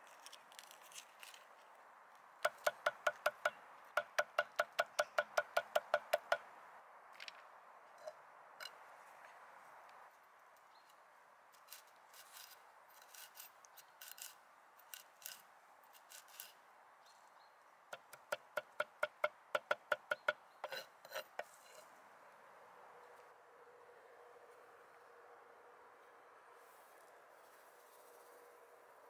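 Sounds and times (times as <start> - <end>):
knife chopping on wooden board: 2.5 - 6.4, 18.0 - 21.5.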